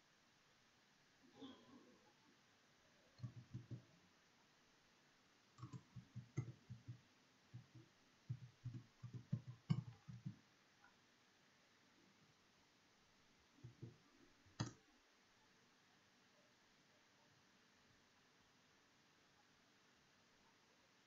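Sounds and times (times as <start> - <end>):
keyboard typing: 3.2 - 4.0, 5.6 - 10.4, 13.6 - 14.8.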